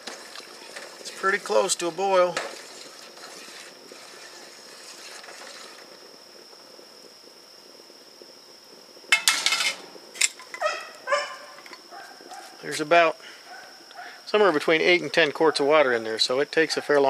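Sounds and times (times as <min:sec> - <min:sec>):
steady high whine: 0:00.0 - 0:17.0
dog barking: 0:10.6 - 0:12.5, 0:13.5 - 0:14.2, 0:16.7 - 0:16.9.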